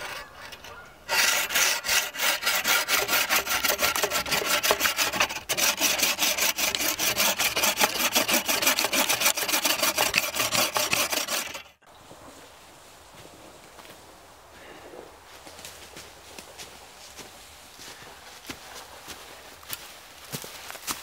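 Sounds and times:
hand saw cutting wood: 0.0 - 11.8.

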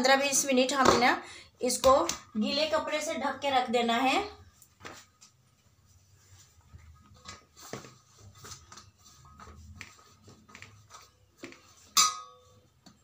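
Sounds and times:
cloth rustling: 4.4 - 11.9.

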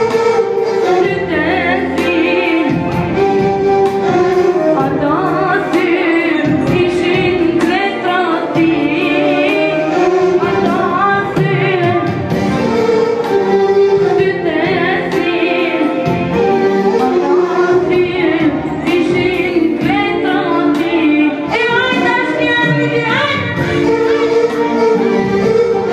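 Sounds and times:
musical accompaniment: 0.0 - 25.9
woman singing: 0.7 - 12.6, 13.9 - 24.3.

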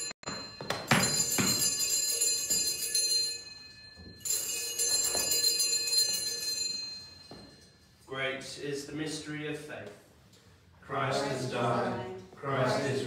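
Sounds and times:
small bells ringing: 0.0 - 8.1.

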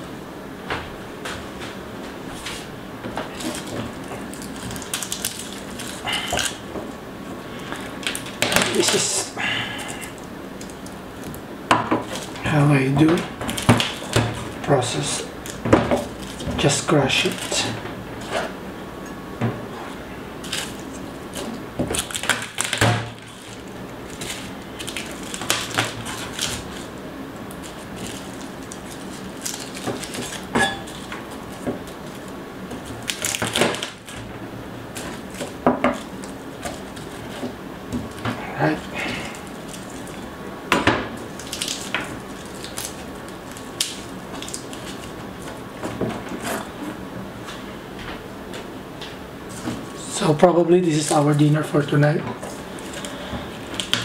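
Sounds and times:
garlic being crushed: 3.2 - 6.7, 7.6 - 18.5, 20.4 - 34.3, 34.9 - 46.8.

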